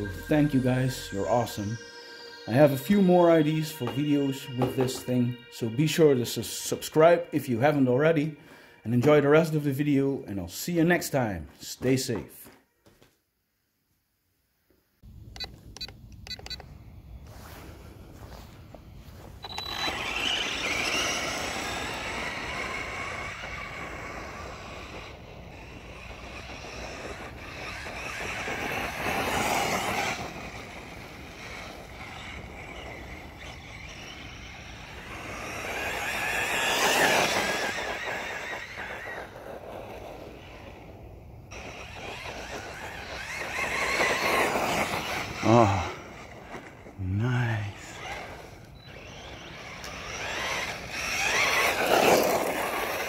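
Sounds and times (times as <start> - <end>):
electric motor whine: 0.0 - 6.3, 17.3 - 47.0, 47.6 - 53.0
tyres on gravel: 15.4 - 53.0.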